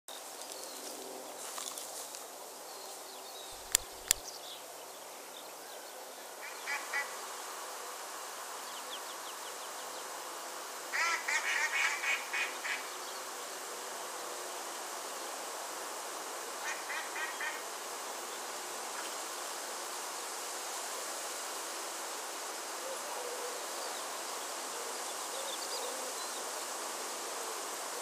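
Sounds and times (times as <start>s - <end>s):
steady hiss: 0.1s - 28.0s
sharp clicks: 3.6s - 4.2s.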